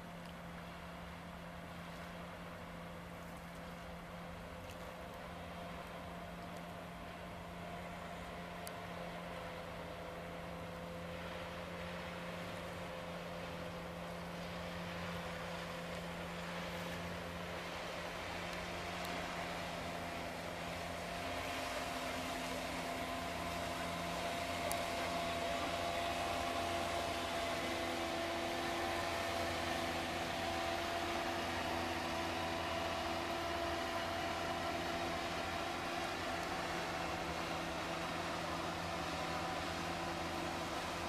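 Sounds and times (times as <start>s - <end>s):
steady engine drone: 0.0s - 41.0s
faint high tick: 0.2s - 0.4s, 4.6s - 5.2s, 5.8s - 6.8s, 24.6s - 24.9s.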